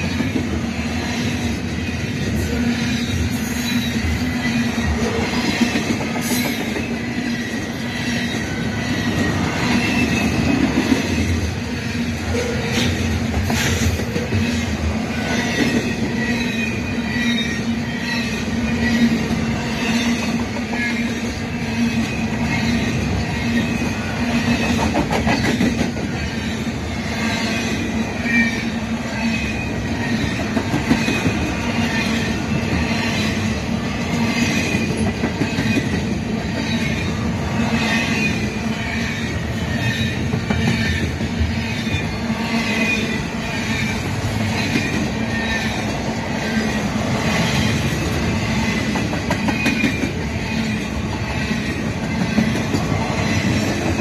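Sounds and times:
train cars clanking: 0.0s - 54.0s
train wheels rumbling on rails: 0.0s - 54.0s
high wavering wheel squeal: 11.7s - 24.2s.

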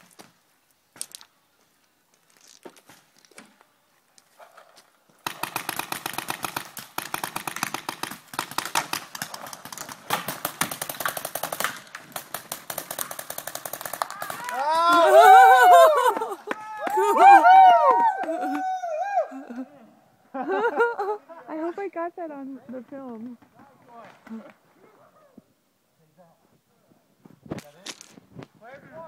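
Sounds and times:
paintball markers firing: 5.2s - 14.7s.

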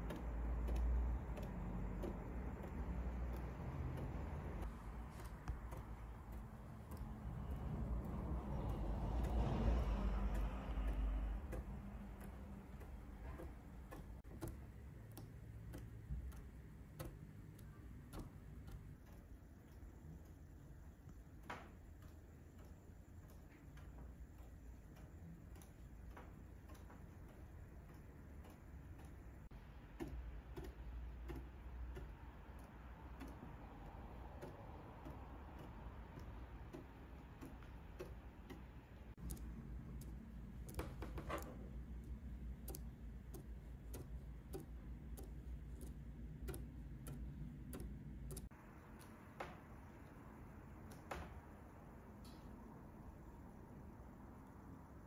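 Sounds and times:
soft ticking: 0.0s - 55.0s
needle tip tapping canvas: 30.0s - 49.9s.

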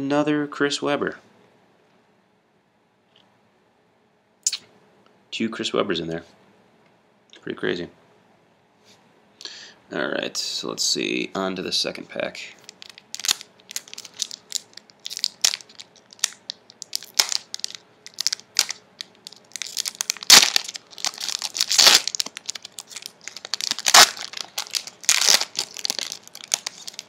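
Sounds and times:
foil wrapper crinkling and tearing: 12.6s - 27.0s.

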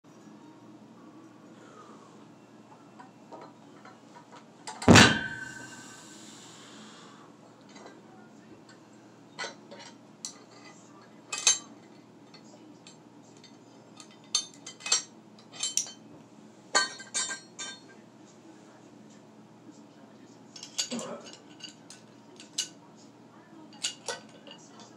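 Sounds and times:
weight plates clanging on floor: 4.8s - 6.0s.

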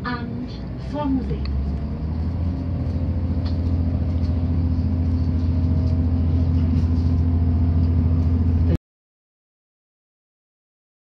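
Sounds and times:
train engine drone: 0.0s - 8.8s
train rumbling on track: 0.0s - 8.8s.

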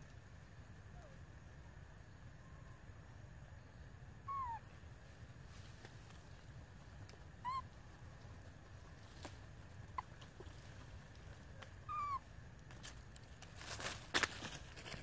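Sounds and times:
baby monkey whimpering coo calls: 4.3s - 4.7s, 7.4s - 8.0s, 11.8s - 12.2s.

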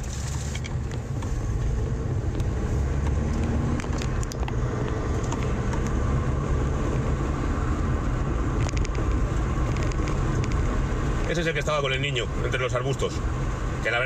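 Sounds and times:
car rumble while driving: 0.0s - 14.0s.

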